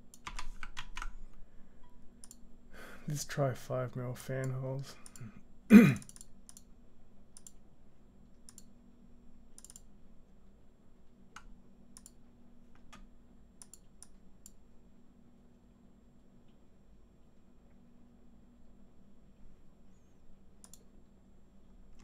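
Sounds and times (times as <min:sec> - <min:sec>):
faint low hum: 0:00.0 - 0:22.0
mouse and keyboard clicks: 0:09.6 - 0:09.9.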